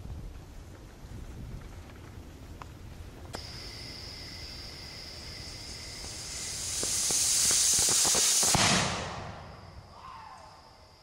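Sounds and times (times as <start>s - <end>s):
firework crackles: 0.0s - 10.0s
firework fountain hissing: 3.4s - 10.0s.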